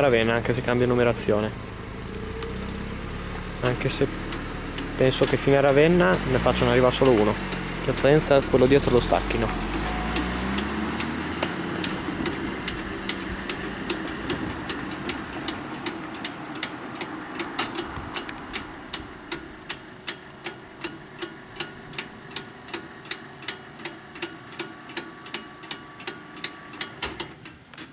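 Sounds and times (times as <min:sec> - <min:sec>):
car engine pulling away: 0:00.0 - 0:27.5
level-crossing bell ringing: 0:07.6 - 0:09.8.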